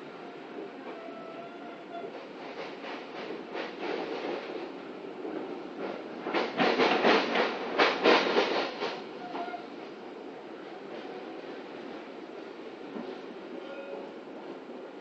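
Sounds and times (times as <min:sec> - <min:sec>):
train running rumble: 0:00.0 - 0:15.0
train wheels clattering over joints: 0:05.3 - 0:09.6.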